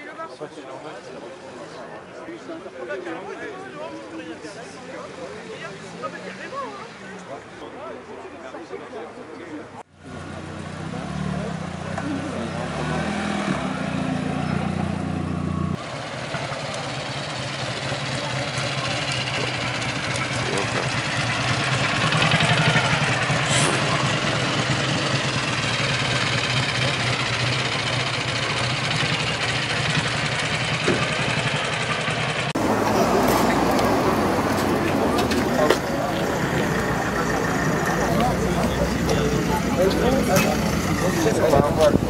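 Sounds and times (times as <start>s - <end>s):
steady engine hum: 9.9s - 42.0s
motorcycle engine passing: 10.0s - 42.0s.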